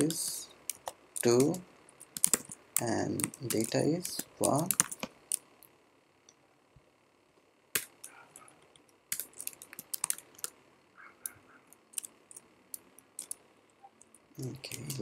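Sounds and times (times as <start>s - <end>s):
computer keyboard keystrokes: 0.0s - 5.4s, 7.8s - 8.2s, 9.1s - 10.5s, 11.2s - 13.4s, 14.0s - 15.0s.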